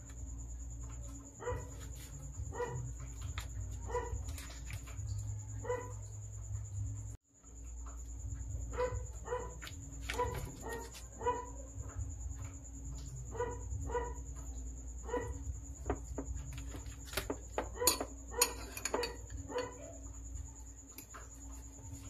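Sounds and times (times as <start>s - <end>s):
dog barking: 1.4s - 3.0s, 3.7s - 4.5s, 5.5s - 6.1s, 8.7s - 12.0s, 13.3s - 14.4s, 15.0s - 16.0s, 17.6s - 20.0s
fork clinking on ceramic bowl: 17.2s - 19.8s.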